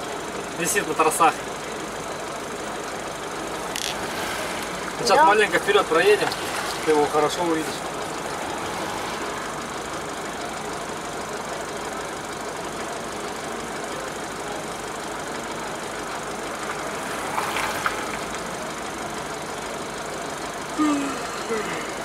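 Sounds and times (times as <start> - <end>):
diesel engine running: 0.0 - 22.0.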